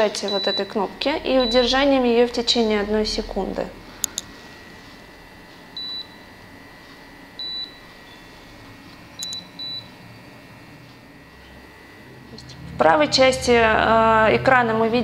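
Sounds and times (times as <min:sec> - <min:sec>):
short high beeps: 0:00.3 - 0:01.9, 0:09.2 - 0:09.9.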